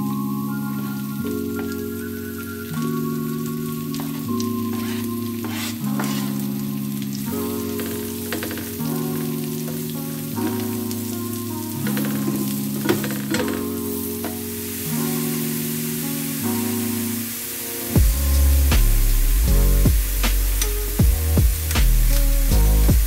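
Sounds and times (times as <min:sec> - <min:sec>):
soft background music: 0:00.0 - 0:23.0
mushrooms sizzling in butter: 0:04.1 - 0:06.6
spatula scraping a pan: 0:04.7 - 0:06.4.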